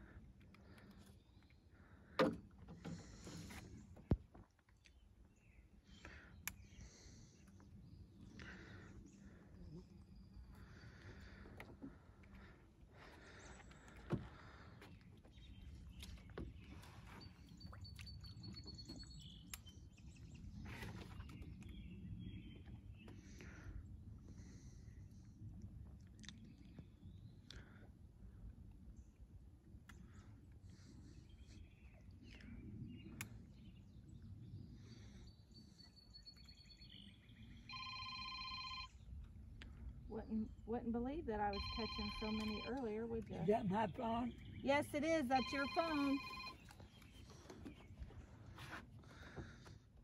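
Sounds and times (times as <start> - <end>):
faint outdoor background: 0.0 - 50.0
phone ringing with pulsing tones: 37.6 - 39.1, 41.5 - 42.9, 45.2 - 46.8.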